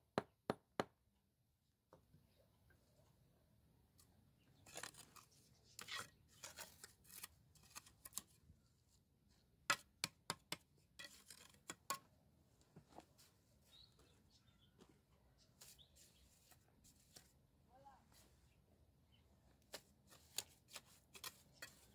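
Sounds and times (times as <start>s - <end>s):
trowel scraping wet mortar: 11.0s - 12.0s, 19.7s - 21.9s.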